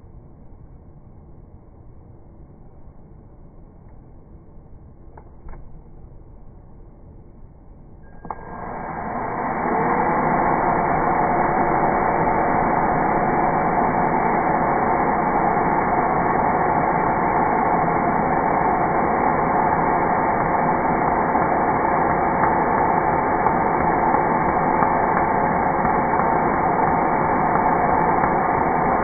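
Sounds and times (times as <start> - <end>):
cordless drill motor running: 8.2 - 29.0.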